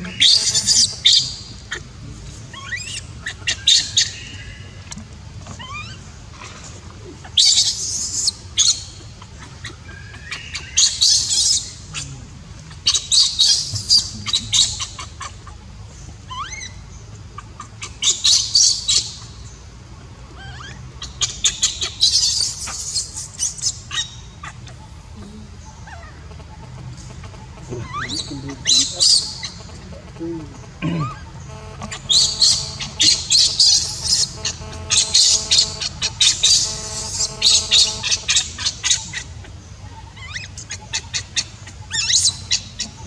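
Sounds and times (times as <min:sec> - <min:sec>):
baby monkey screeching cries: 0:00.0 - 0:01.9, 0:02.5 - 0:04.6, 0:05.5 - 0:06.5, 0:07.2 - 0:15.6, 0:16.2 - 0:19.3, 0:20.3 - 0:24.9, 0:25.6 - 0:26.4, 0:27.1 - 0:29.7, 0:30.8 - 0:43.0
rising squeaks: 0:31.0 - 0:39.3.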